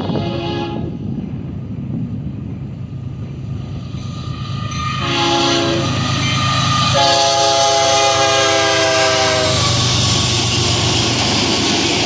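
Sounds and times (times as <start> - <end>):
locomotive air horn: 0.0 - 1.0, 5.0 - 6.2, 6.8 - 9.8
diesel locomotive rumble: 0.0 - 12.0.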